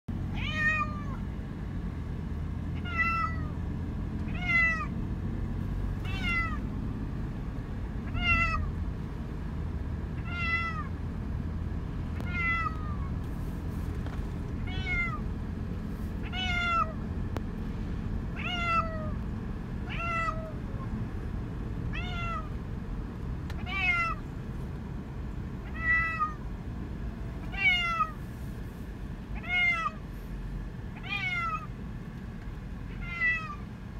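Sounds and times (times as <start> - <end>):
car low rumble: 0.1 - 33.9
cat meowing: 0.3 - 1.2, 2.8 - 3.6, 4.3 - 4.9, 6.0 - 6.6, 8.0 - 8.7, 10.2 - 10.9, 12.2 - 13.1, 14.6 - 15.2, 16.2 - 17.0, 18.4 - 19.2, 19.8 - 20.9, 21.9 - 22.5, 23.6 - 24.2, 25.6 - 26.4, 27.5 - 28.2, 29.4 - 30.0, 31.0 - 31.7, 32.9 - 33.6.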